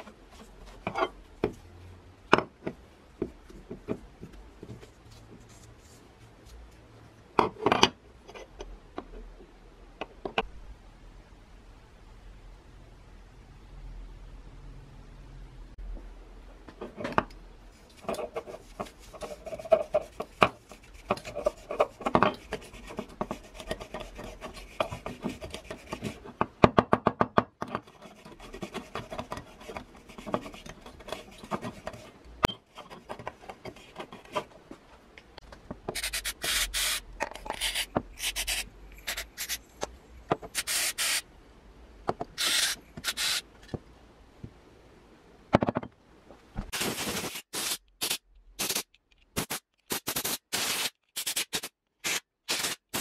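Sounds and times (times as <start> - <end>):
short bursts of hiss: 36.0 - 37.0, 37.6 - 39.6, 40.5 - 41.2, 42.4 - 43.5, 46.8 - 53.0.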